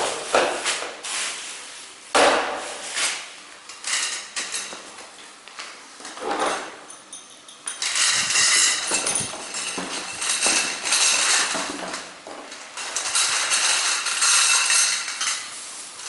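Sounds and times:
metal pieces clinking: 0:06.9 - 0:11.5.

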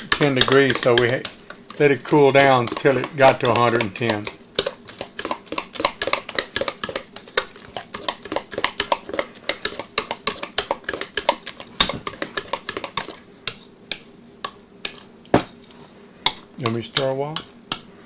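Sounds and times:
spoon knocking metal bowl: 0:00.0 - 0:01.1.

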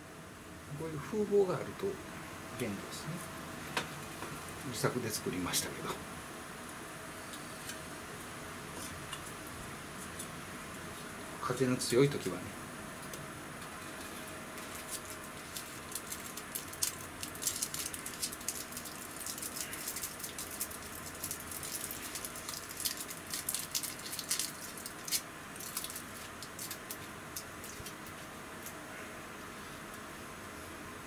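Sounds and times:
packet crinkling and tearing: 0:14.0 - 0:28.7.

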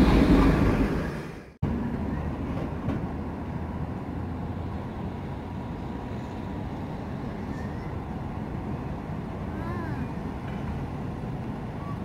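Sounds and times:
distant tram rolling on tracks: 0:00.0 - 0:12.0
low rumble of street traffic: 0:00.0 - 0:12.0.

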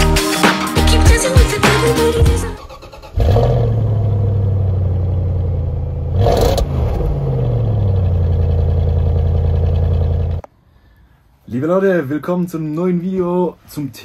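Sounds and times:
van engine starting and idling: 0:01.0 - 0:10.5.

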